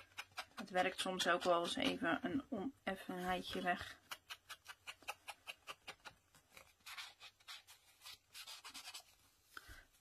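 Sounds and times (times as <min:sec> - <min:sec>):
foam tool rubbing on paper: 0:06.8 - 0:09.2.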